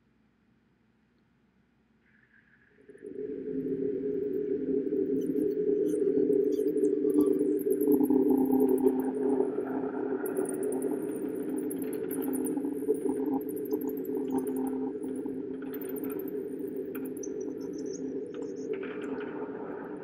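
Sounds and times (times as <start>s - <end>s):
high-pitched cricket-like chirps: 5.0s - 18.8s.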